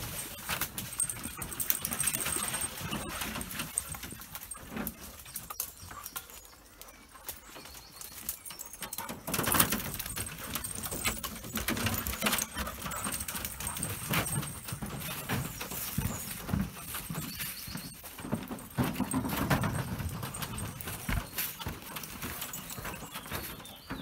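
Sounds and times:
footsteps on wooden boardwalk: 10.0 - 24.0.

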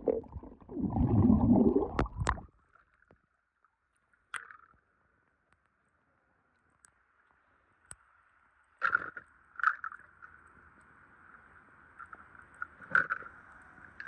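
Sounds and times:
faint steady hiss: 5.0 - 14.0.

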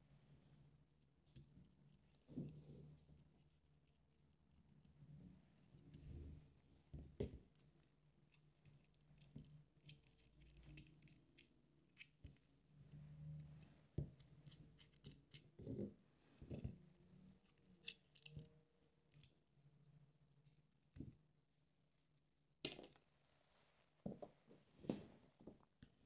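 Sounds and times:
parts being handled: 16.4 - 18.5.

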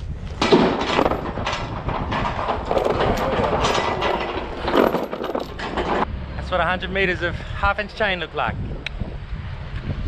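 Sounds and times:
chain clattering and scraping: 0.4 - 6.1.

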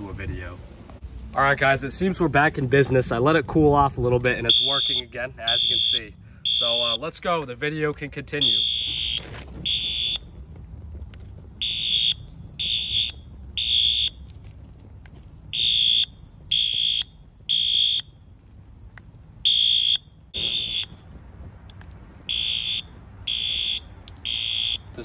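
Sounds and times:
fire alarm horn blasts: 4.4 - 7.2, 8.3 - 10.3, 11.6 - 14.3, 15.5 - 18.2, 19.4 - 21.0, 22.3 - 25.0.

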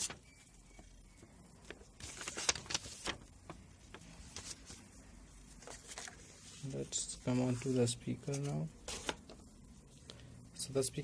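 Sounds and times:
paper manual rustling: 1.6 - 9.2.

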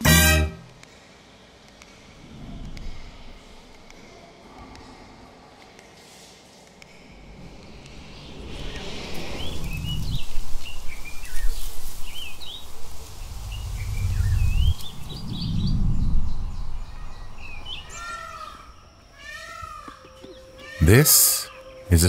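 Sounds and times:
deep rumbling swells: 7.0 - 18.8
birds chirping: 8.1 - 22.0.

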